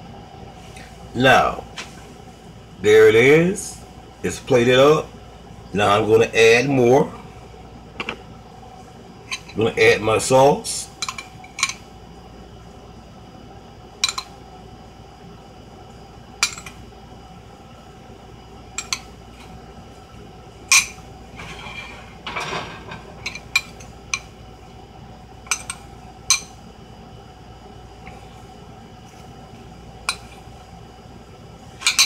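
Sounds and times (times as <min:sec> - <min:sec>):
spoon scraping bowl: 0:21.4 - 0:22.6.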